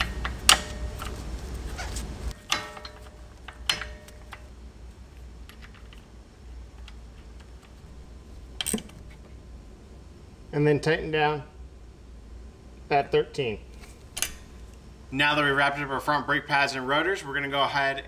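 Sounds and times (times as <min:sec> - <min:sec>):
faint low hum: 0:00.0 - 0:18.0
sharp metallic clicks and clinks: 0:02.3 - 0:04.5.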